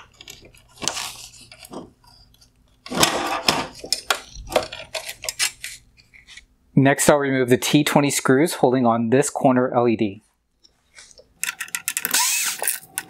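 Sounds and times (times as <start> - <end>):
plastic connectors clicking and scraping: 0.0 - 6.4, 11.0 - 13.0.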